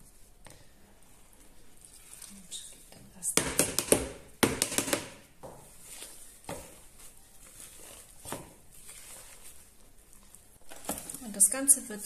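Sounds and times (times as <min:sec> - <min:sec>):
dough being stirred in a bowl: 0:00.0 - 0:12.0.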